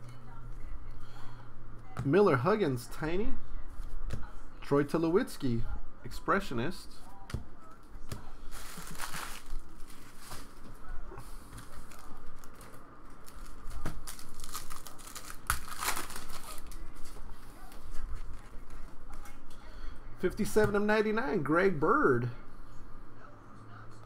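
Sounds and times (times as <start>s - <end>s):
cards rustling: 8.4s - 10.7s, 11.4s - 17.2s
foil wrapper crinkling and tearing: 8.5s - 10.5s, 11.9s - 17.0s.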